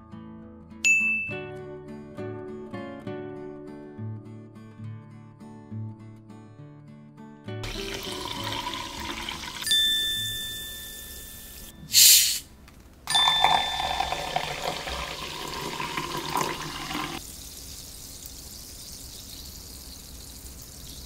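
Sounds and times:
glass ding: 0:00.9 - 0:01.4, 0:09.6 - 0:11.9, 0:13.1 - 0:15.1
bubbles fizzing: 0:07.6 - 0:09.7, 0:13.1 - 0:21.0
water pouring into glass: 0:07.6 - 0:09.9, 0:13.1 - 0:21.0
sparkling water hiss: 0:13.6 - 0:21.0.

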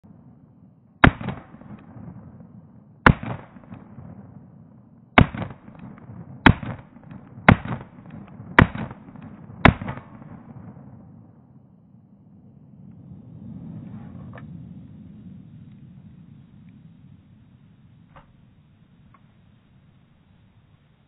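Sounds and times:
pistol shots echoing: 0:01.0 - 0:02.4, 0:03.0 - 0:04.4, 0:05.2 - 0:10.8.

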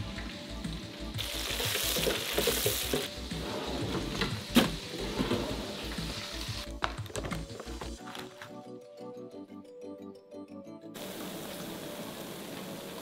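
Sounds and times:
hot oil sizzling: 0:00.0 - 0:05.0, 0:05.6 - 0:06.7, 0:11.0 - 0:13.0
background music: 0:00.0 - 0:13.0.

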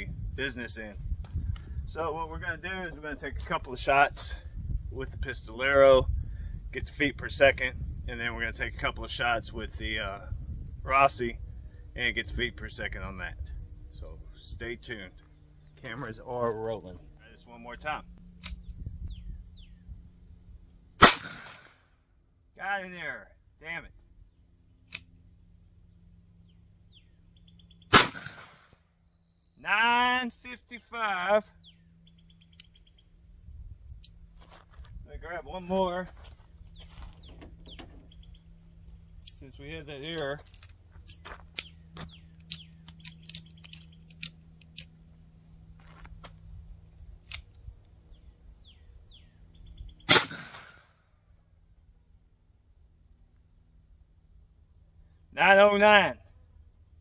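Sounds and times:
single click: 0:18.4 - 0:18.7, 0:24.9 - 0:25.1, 0:47.2 - 0:47.6
revolver metallic clicks: 0:18.4 - 0:18.8, 0:24.8 - 0:25.2, 0:32.4 - 0:32.9, 0:34.0 - 0:34.2, 0:40.5 - 0:45.1, 0:47.2 - 0:47.6
handgun shot echoing: 0:21.0 - 0:21.7, 0:27.9 - 0:28.6, 0:50.1 - 0:50.9.

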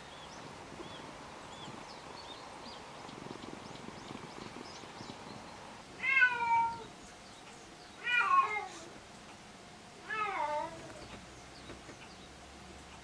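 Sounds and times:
cat meowing: 0:06.0 - 0:06.9, 0:08.0 - 0:08.9, 0:10.0 - 0:11.0.

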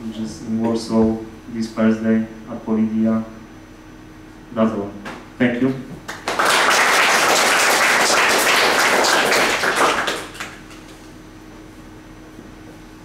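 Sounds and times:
audience applauding: 0:06.1 - 0:10.8.

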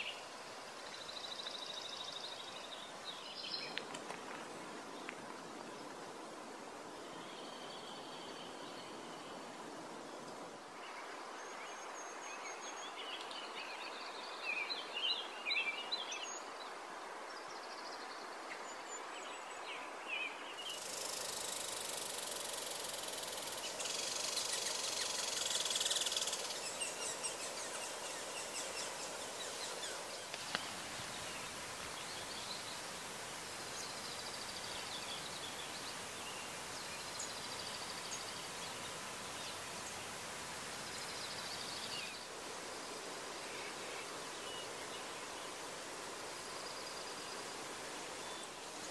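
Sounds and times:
mountain stream rushing: 0:18.2 - 0:48.9.

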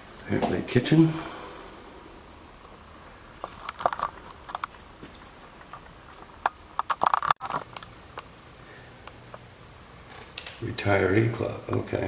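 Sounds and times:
sharp clicks and knocks: 0:03.4 - 0:08.3.

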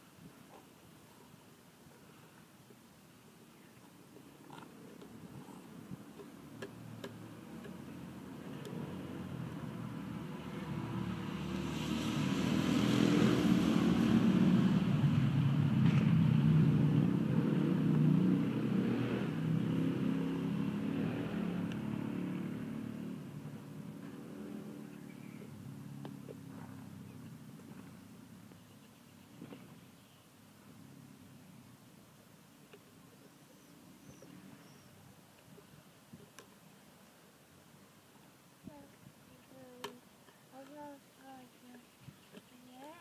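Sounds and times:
passing vehicle engine: 0:06.4 - 0:28.4.

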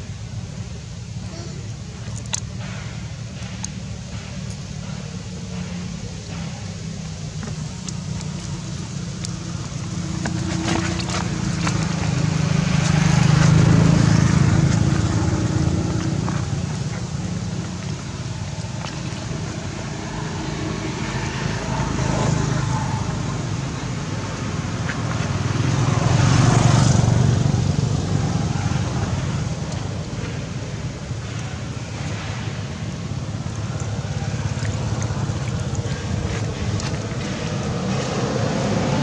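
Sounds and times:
vehicles passing: 0:00.0 - 0:39.0.

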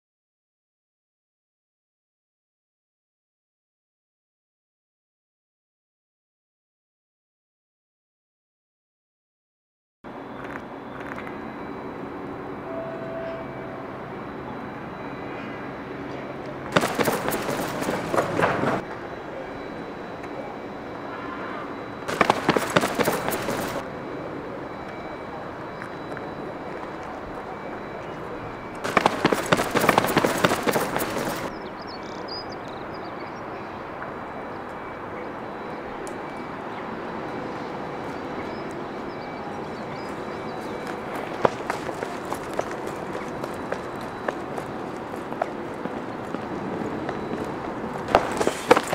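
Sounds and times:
distant vehicles rumbling: 0:10.1 - 0:48.9
urban background hum: 0:10.1 - 0:48.9
faint bird chirps: 0:29.1 - 0:33.8.

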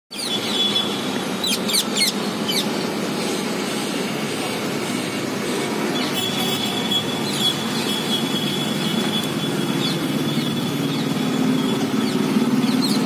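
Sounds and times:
road traffic rumble: 0:00.1 - 0:13.0
parakeets shrill calls: 0:00.2 - 0:02.8.

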